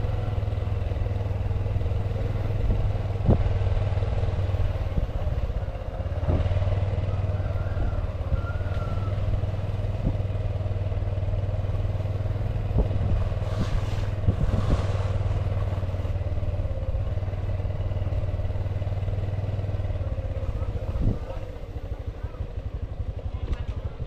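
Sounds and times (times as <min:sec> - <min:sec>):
motorcycle engine running: 0:00.0 - 0:24.0.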